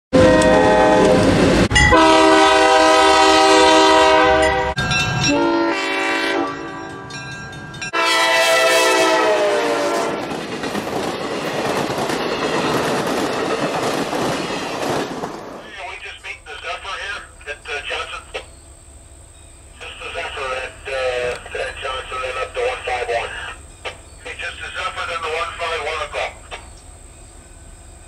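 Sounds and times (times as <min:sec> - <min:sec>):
locomotive air horn blasts: 0:00.1 - 0:07.0, 0:07.9 - 0:10.2
railroad cars rumbling and clattering: 0:00.2 - 0:28.0.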